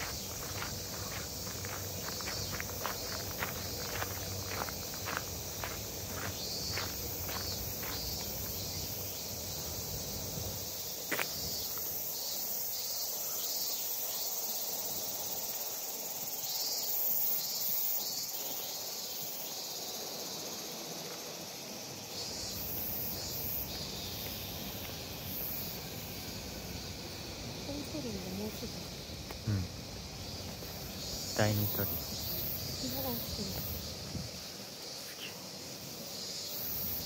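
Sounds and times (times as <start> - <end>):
footsteps on gravel: 0.0 - 8.8
insects chirring: 0.0 - 37.0.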